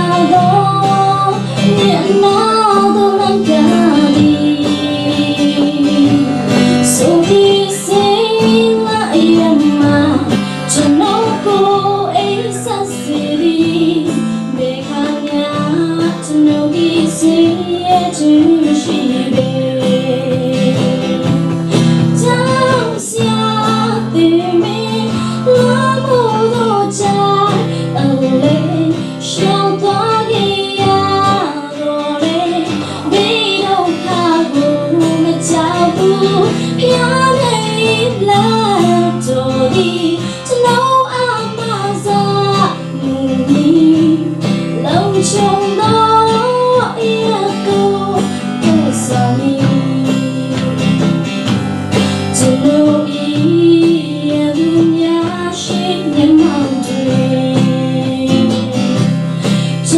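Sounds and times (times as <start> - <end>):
acoustic guitar: 0.0 - 59.9
woman singing into microphone: 0.0 - 59.9.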